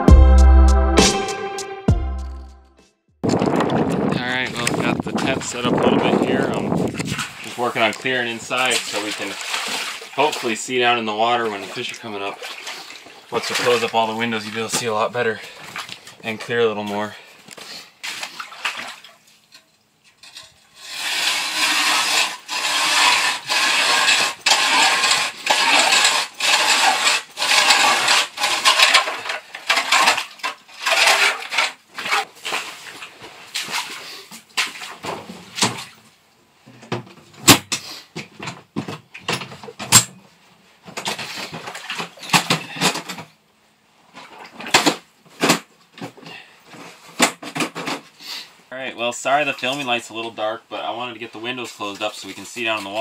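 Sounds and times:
ice auger scraping through ice: 20.8 - 32.3.

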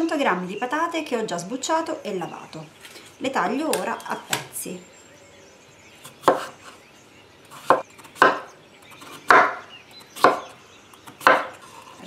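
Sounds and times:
knife chopping on wooden board: 6.2 - 6.5, 7.5 - 9.6, 10.2 - 10.5, 11.1 - 11.6.

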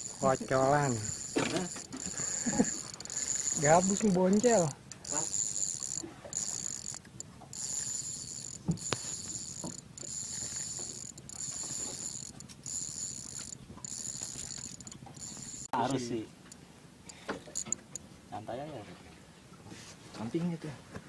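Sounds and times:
fishing reel gears whirring: 0.0 - 16.0, 17.1 - 18.0
sharp click: 8.5 - 10.1.

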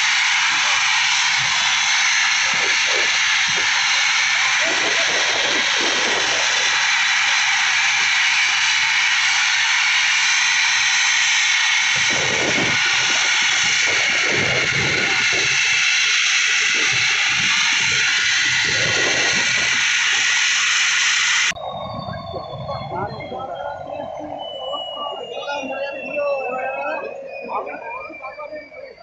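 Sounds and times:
helicopter rotor and turbine noise: 0.0 - 29.0
uneven low rumbling: 21.5 - 29.0.

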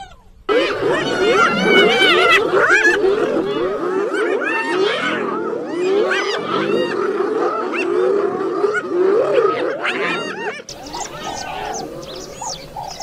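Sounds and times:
hyenas whooping and giggling: 0.5 - 4.4, 10.7 - 13.0
lionesses snarling and growling: 10.7 - 13.0.

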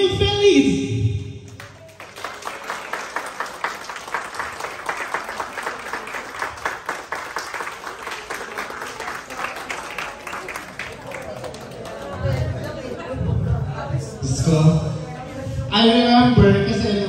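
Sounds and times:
crowd clapping: 1.5 - 13.0.

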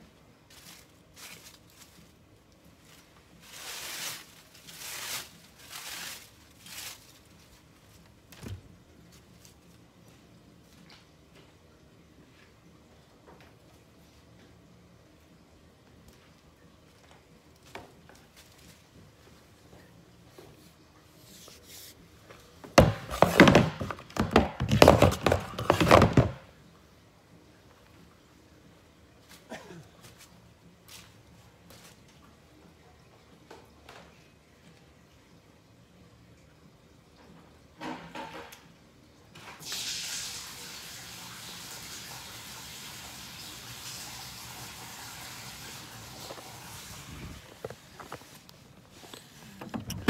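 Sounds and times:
garden hose scraping and rustling: 0.0 - 11.0, 16.9 - 26.4, 29.2 - 32.4, 39.3 - 50.0.

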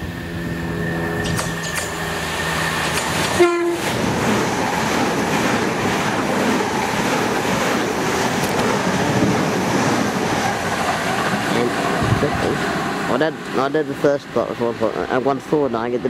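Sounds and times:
train passing with rushing air: 0.0 - 16.0
train horn: 3.3 - 3.9.

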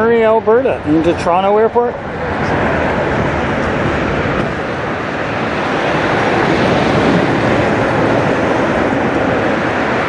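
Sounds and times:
jet engines rumbling: 0.0 - 10.0.

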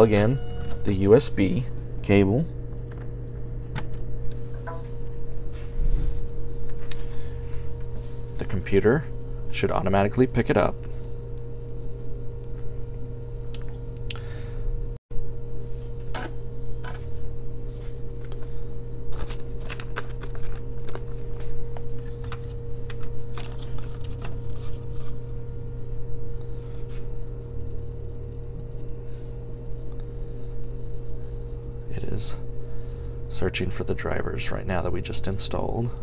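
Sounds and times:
low hum with higher tone: 0.0 - 36.0.

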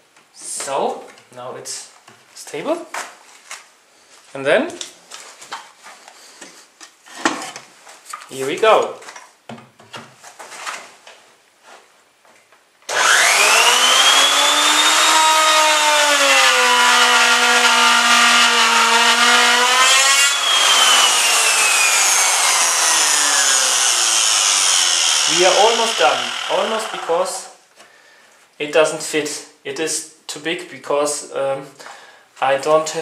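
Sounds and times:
electric router whining: 12.9 - 27.5
router bit cutting wood: 12.9 - 27.5.

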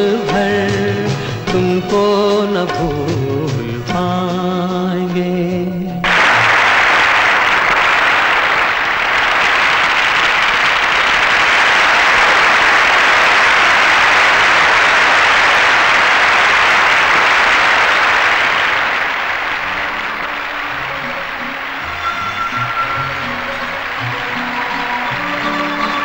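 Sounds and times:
large audience applauding: 6.0 - 26.0.

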